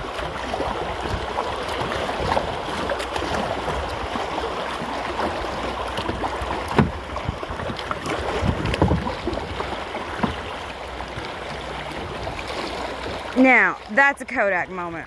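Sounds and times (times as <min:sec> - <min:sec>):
river current rushing: 0:00.0 - 0:14.7
paddle strokes splashing: 0:00.0 - 0:15.0.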